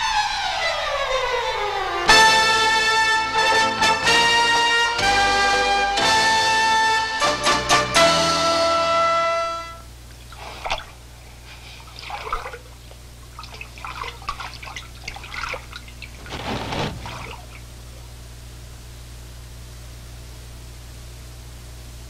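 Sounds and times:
steady low hum: 0:09.7 - 0:22.0
water splashing in a bathtub: 0:10.1 - 0:17.8.

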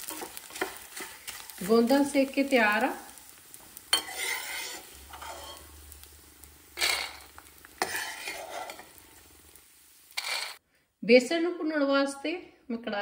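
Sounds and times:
metal spatula scraping pan: 0:00.0 - 0:01.8, 0:03.9 - 0:06.0, 0:06.8 - 0:09.0, 0:10.1 - 0:10.6
frying in hot oil sizzling: 0:00.0 - 0:10.6.

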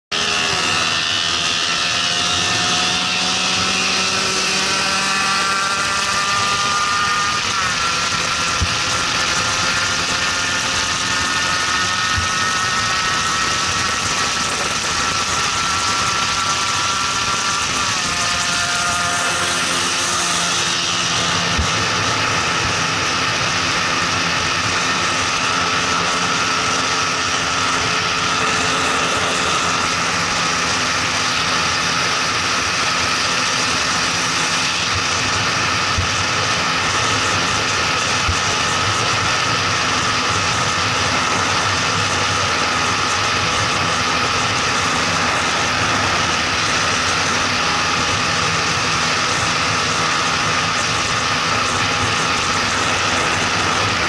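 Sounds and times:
motorcycle engine at high revs: 0:00.1 - 0:54.0.

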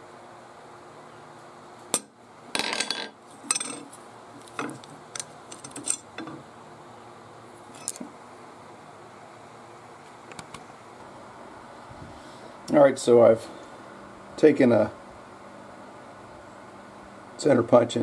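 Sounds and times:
steel parts clinking on plate: 0:02.6 - 0:03.9.

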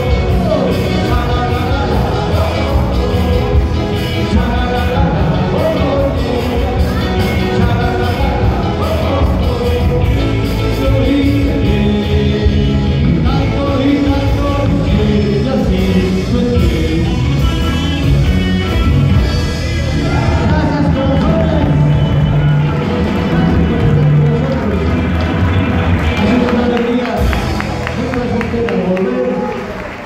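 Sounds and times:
man singing through pa: 0:00.0 - 0:18.0, 0:18.9 - 0:24.9
drums with steady beat: 0:00.0 - 0:22.5
electric guitar: 0:00.0 - 0:30.0.

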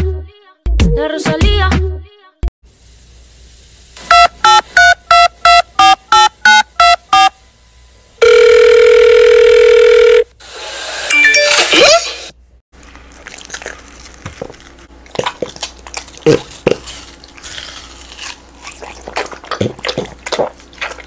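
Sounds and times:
keypad beeps: 0:04.1 - 0:07.3.

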